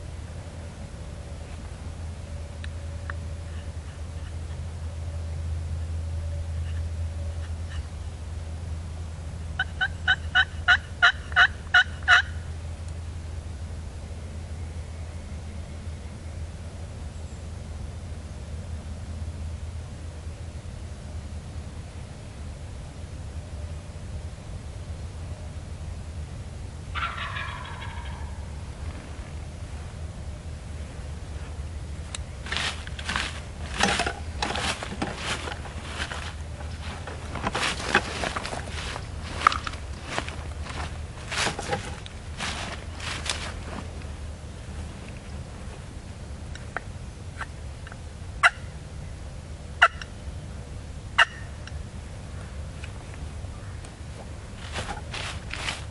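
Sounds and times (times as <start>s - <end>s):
wild turkey yelping: 9.6s - 12.4s, 26.9s - 28.6s, 48.4s - 48.7s, 49.8s - 50.1s, 51.2s - 51.6s
footsteps crunching dry leaves: 32.3s - 45.9s, 54.5s - 55.9s.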